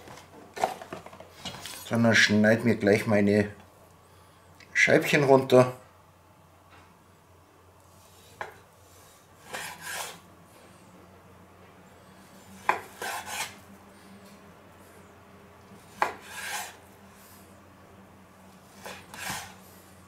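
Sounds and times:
knife scraping rasp: 9.4s - 10.2s, 12.5s - 13.6s, 15.8s - 16.8s, 18.7s - 19.7s.

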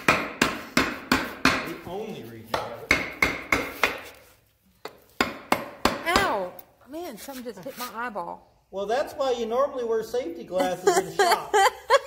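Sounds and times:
hammer striking metal: 0.0s - 1.8s, 2.5s - 4.1s.

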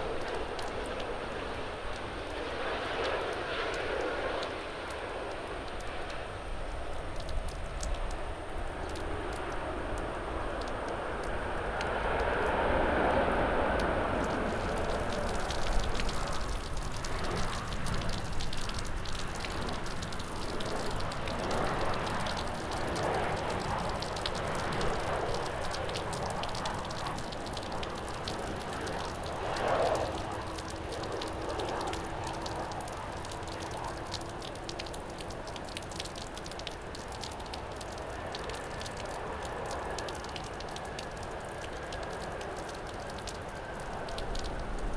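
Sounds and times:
jet engines rumbling: 0.0s - 35.5s
heavy rain falling: 0.0s - 44.9s.

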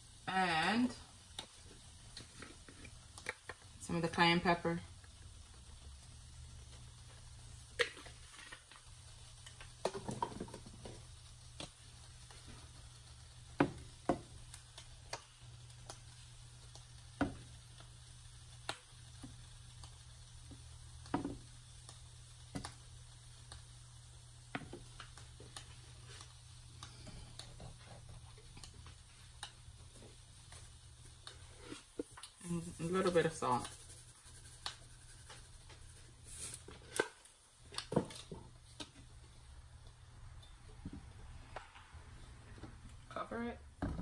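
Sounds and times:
wooden spatula scraping skillet: 29.9s - 37.2s.

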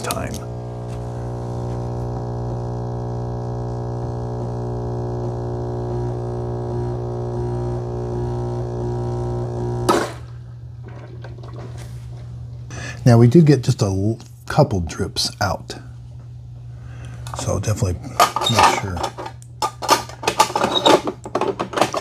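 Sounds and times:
espresso machine pump buzzing: 0.0s - 10.8s.

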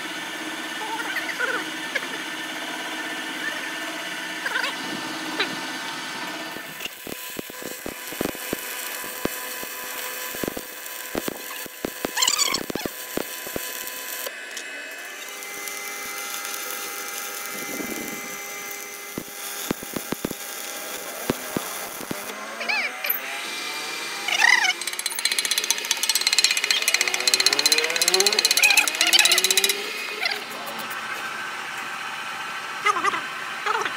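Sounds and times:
steady hum: 6.5s - 22.4s
welding arc crackling and popping: 6.5s - 22.4s, 24.4s - 31.2s.

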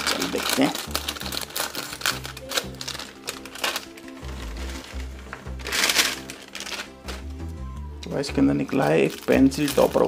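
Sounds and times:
scissors snipping foil packet: 0.0s - 7.2s, 8.8s - 10.0s
snack rings poured onto tray: 2.9s - 7.2s
background music with bass line: 4.0s - 8.7s.

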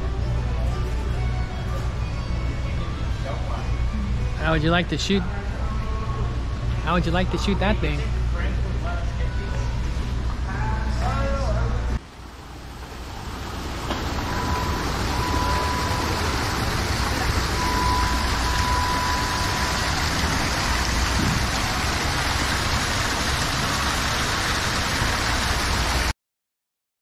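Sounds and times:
waterfall pouring into pond: 12.1s - 26.1s.

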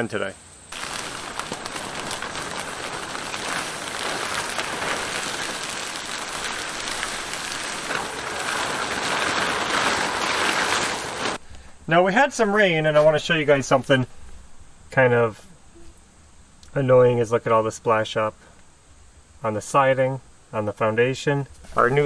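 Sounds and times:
plastic sheeting crinkling: 0.7s - 11.4s, 21.6s - 22.0s.

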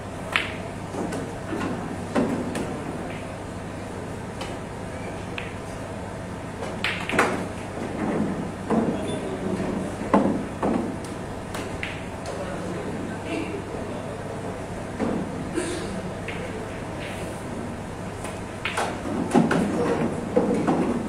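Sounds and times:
cue striking ball: 0.3s - 1.3s, 5.2s - 5.8s, 6.6s - 9.0s
billiard balls clicking: 6.7s - 7.7s.

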